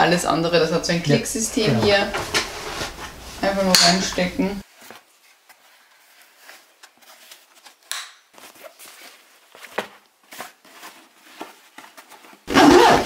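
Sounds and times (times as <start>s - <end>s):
fabric rustling: 1.1s - 13.0s.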